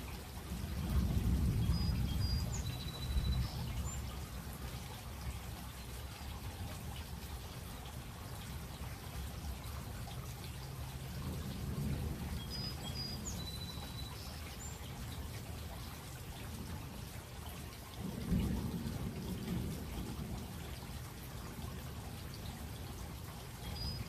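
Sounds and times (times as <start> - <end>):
steady rain: 0.0 - 24.0
thunder rumbling: 0.6 - 3.7, 11.2 - 12.4, 18.0 - 20.7.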